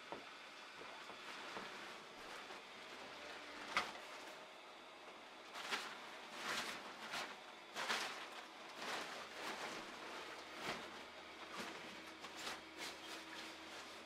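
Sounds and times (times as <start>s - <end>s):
blower fan hum: 0.0s - 14.0s
nylon fabric rustling: 5.5s - 14.0s.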